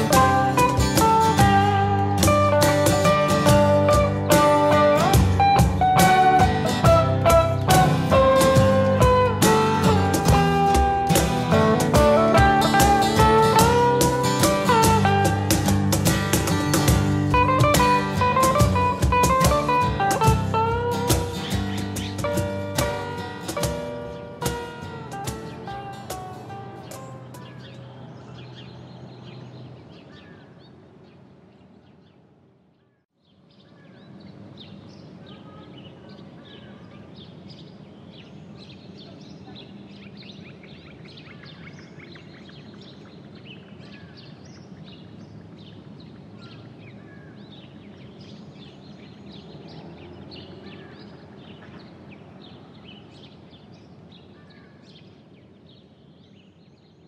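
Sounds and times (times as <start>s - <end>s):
music: 0.0s - 28.0s
birds chirping: 0.0s - 57.0s.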